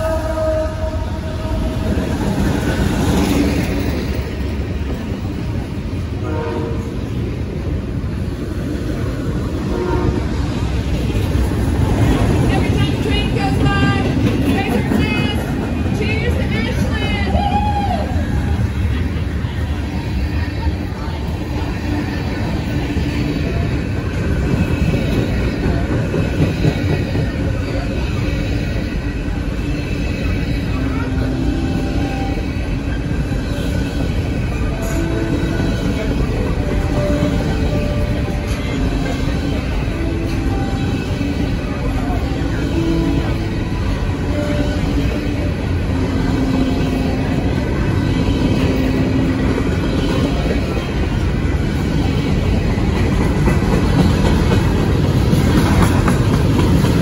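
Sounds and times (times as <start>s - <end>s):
locomotive horn: 0.0s - 2.2s, 6.2s - 7.0s, 9.6s - 10.4s
freight train rumbling on rails: 0.0s - 57.0s.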